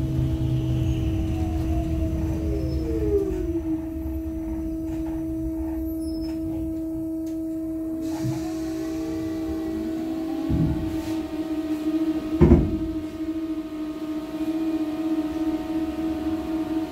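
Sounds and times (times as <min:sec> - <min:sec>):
electric drive whine: 0:00.0 - 0:16.9
steady high hum: 0:00.0 - 0:16.9
blower rushing hiss: 0:08.0 - 0:12.6.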